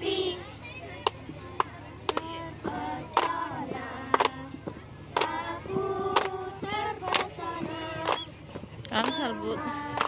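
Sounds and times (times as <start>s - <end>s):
girls singing together: 0.0s - 0.6s, 2.0s - 10.0s
hand claps: 1.0s - 10.0s.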